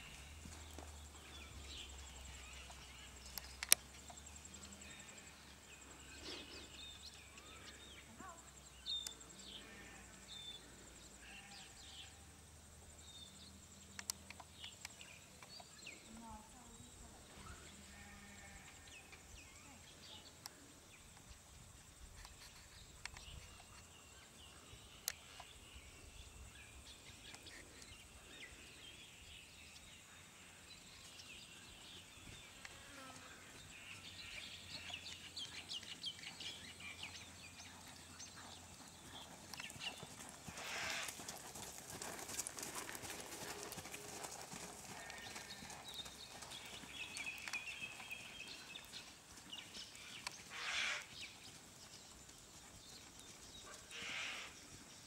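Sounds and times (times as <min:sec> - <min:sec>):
horse hoofbeats on sand: 0:38.4 - 0:49.7.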